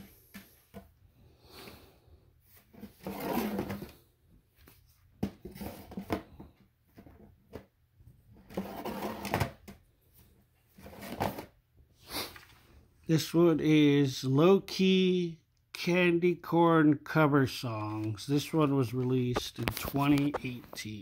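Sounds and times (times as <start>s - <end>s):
cd cases clicking and rustling: 19.0s - 21.0s.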